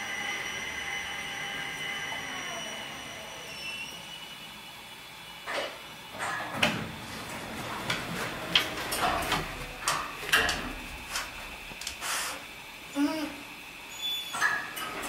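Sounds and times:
elevator doors sliding open: 6.2 - 11.7, 14.3 - 15.0.

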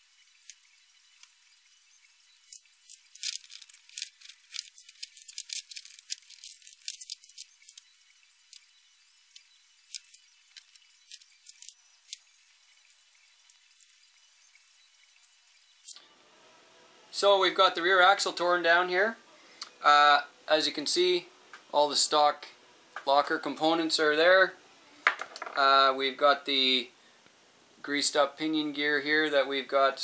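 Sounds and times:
small parts clicking and rattling: 0.0 - 16.0.

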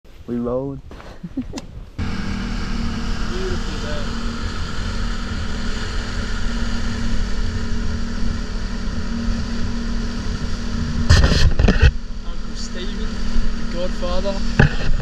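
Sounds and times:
loud rushing burst: 2.0 - 11.6
motorboat engine running: 2.0 - 15.0.

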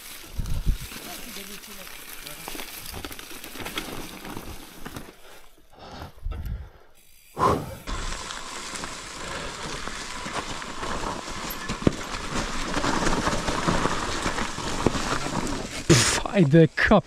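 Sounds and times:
bike rattling: 0.0 - 5.6, 7.8 - 15.9
bike tyres rolling on forest trail: 0.0 - 17.0
wind noise: 0.3 - 1.0, 6.2 - 6.7.

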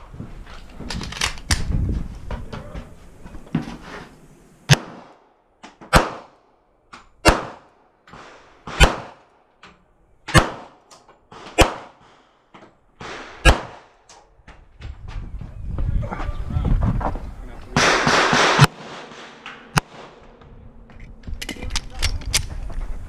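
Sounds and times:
pistol shots with echo: 4.7 - 5.2, 5.9 - 6.4, 7.2 - 9.3, 10.3 - 10.8, 11.4 - 12.0, 13.0 - 14.0, 17.8 - 20.2.

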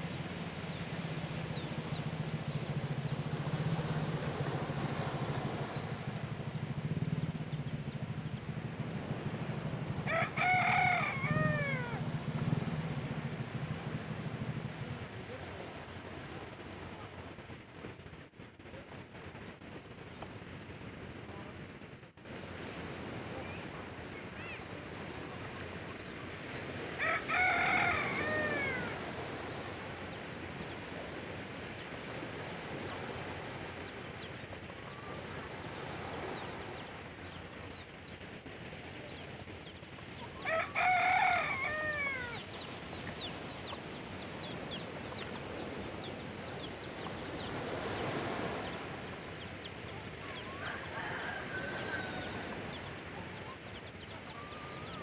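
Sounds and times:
gentle surf: 0.0 - 55.0
rooster crowing: 10.1 - 12.0, 27.0 - 29.0, 40.4 - 42.4, 50.5 - 52.6.

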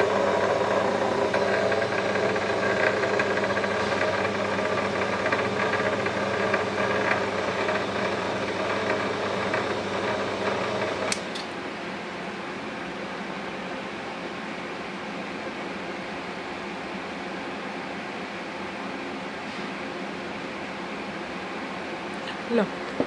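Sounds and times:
wire stripping machine motor hum: 0.0 - 11.5.

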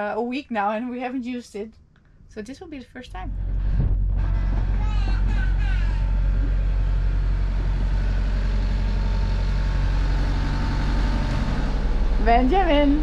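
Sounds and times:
boat engine humming: 3.0 - 13.0.

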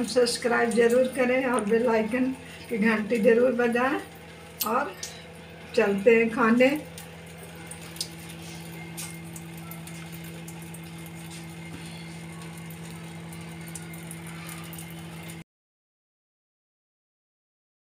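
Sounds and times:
motor humming: 0.7 - 15.4.

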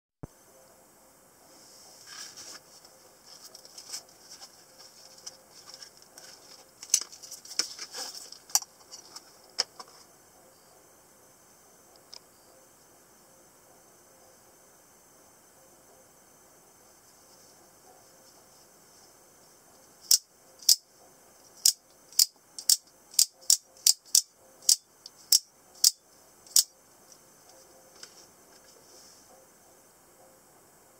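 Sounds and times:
fabric rustling and scraping: 1.5 - 9.2.

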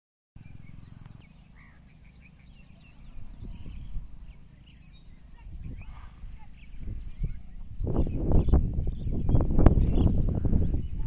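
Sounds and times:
bird-like chirps: 0.4 - 11.0
insects trilling: 0.4 - 11.0
wind rumbling on microphone: 3.0 - 11.0.

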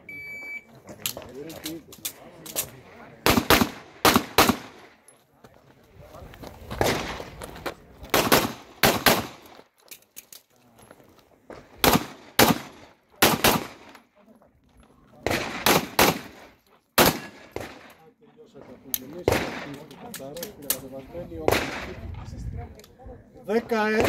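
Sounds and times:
pistol shots: 3.2 - 4.9, 8.1 - 9.5, 11.8 - 13.9, 15.2 - 18.0, 19.2 - 19.9, 21.4 - 22.0.

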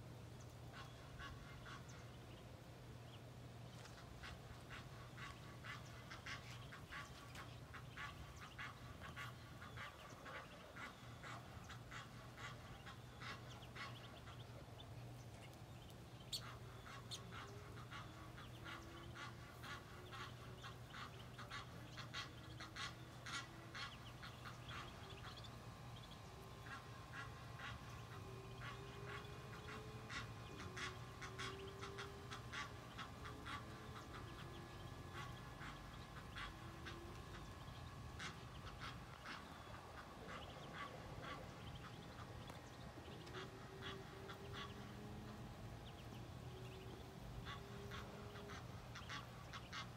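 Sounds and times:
steady low hum: 0.0 - 49.9
ducklings peeping: 0.2 - 49.9.

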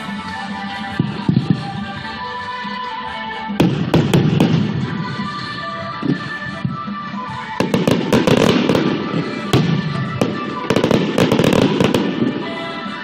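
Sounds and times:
music: 0.0 - 13.0
fireworks bursting and crackling: 3.6 - 5.3, 6.0 - 13.0.

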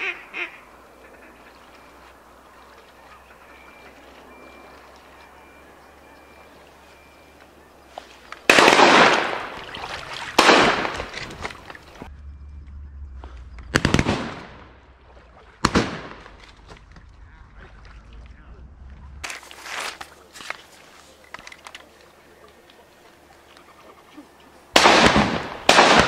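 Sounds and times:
shotgun shots: 8.4 - 9.6, 10.3 - 11.1, 13.7 - 14.8, 15.6 - 16.4, 24.7 - 26.0.

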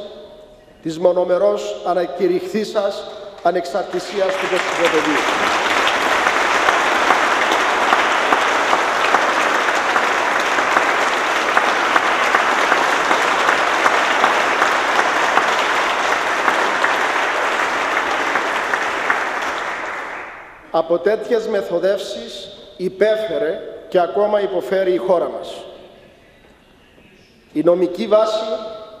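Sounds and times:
crowd applause: 3.8 - 20.6.

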